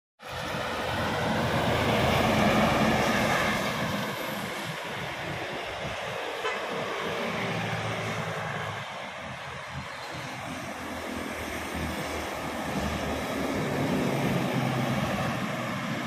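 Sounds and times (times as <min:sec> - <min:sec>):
truck driving past: 0:00.2 - 0:05.6
minibus engine: 0:00.2 - 0:16.0.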